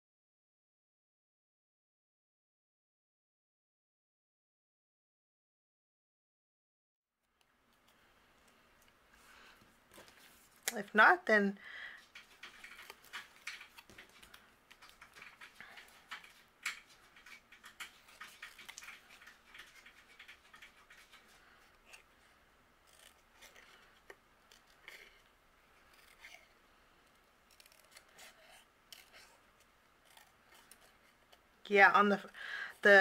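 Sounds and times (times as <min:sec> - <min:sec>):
small scissors snipping paper: 0:12.2 - 0:22.1, 0:22.8 - 0:31.4.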